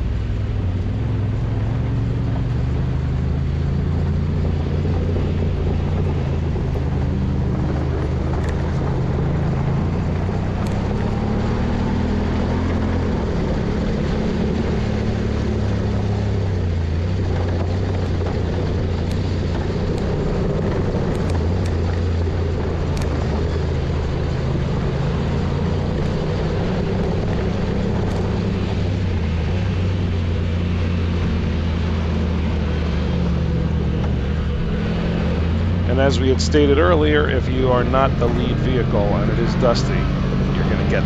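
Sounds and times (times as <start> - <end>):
dirt trail road noise: 0.0 - 41.0
utility vehicle engine droning: 0.0 - 41.0.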